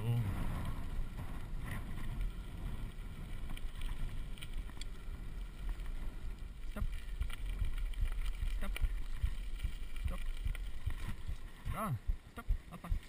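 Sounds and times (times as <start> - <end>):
tyres rolling on gravel: 0.0 - 13.0
wind on microphone: 0.0 - 13.0
small clicks: 2.0 - 11.4.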